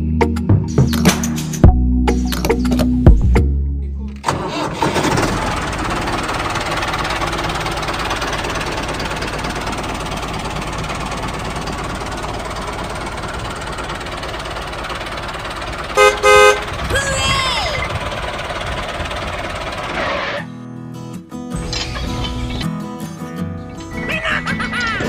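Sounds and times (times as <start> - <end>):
tractor engine running: 0.7 - 20.4, 21.6 - 22.7.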